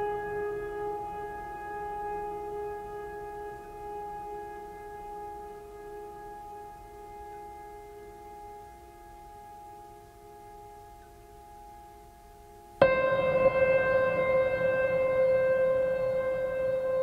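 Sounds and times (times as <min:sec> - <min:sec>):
sustained music chord: 0:12.8 - 0:17.0.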